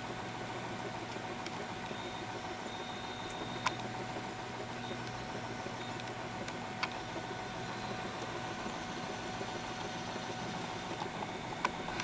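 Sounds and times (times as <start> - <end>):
electrical hum and motor whir: 0.0 - 12.0.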